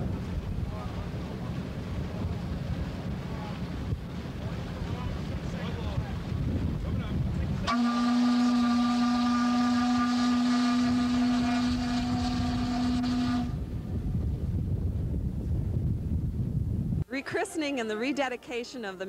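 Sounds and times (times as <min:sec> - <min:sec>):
wind rumbling on microphone: 0:00.0 - 0:17.1
steam whistle blast: 0:07.7 - 0:13.6.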